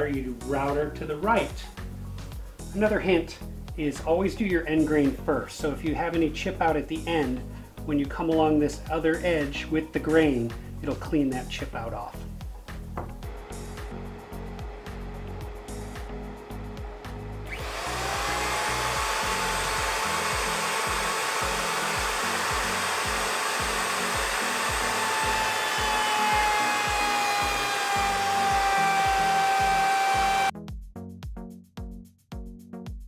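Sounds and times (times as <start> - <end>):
background music with steady beat: 0.0 - 33.0
router whining: 13.2 - 30.5.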